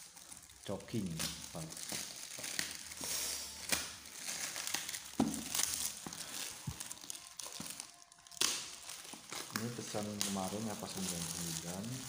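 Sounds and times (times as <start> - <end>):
plastic bag crinkling and tearing: 0.0 - 12.0.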